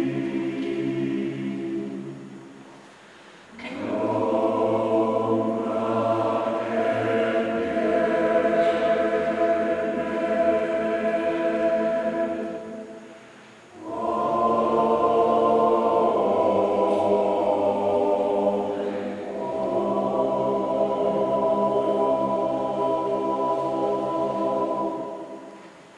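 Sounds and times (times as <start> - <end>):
male choir singing a cappella: 0.0 - 2.5, 3.5 - 25.7.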